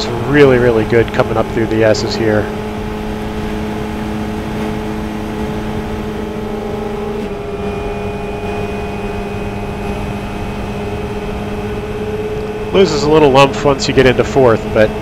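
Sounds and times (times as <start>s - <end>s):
race car engine at high revs: 0.0s - 15.0s
wind and road rush: 0.0s - 15.0s.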